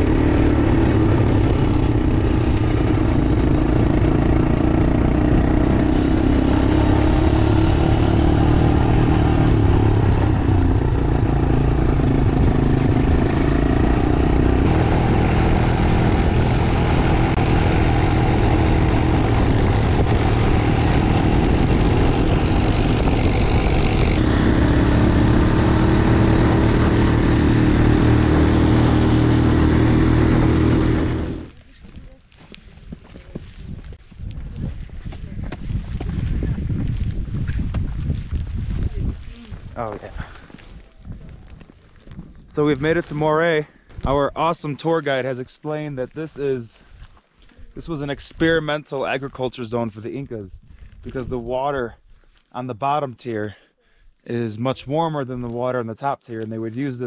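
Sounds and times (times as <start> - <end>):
quad bike engine running: 0.0 - 31.6.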